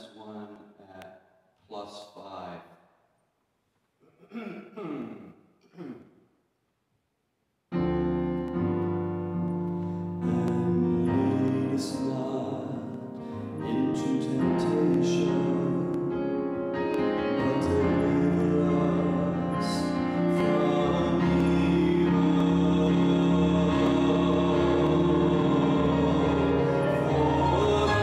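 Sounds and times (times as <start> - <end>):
keyboard music of held chords: 7.8 - 28.0.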